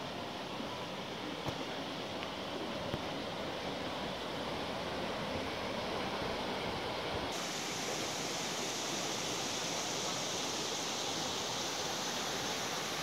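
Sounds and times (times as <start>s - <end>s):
stream flowing over stones: 7.3s - 13.0s.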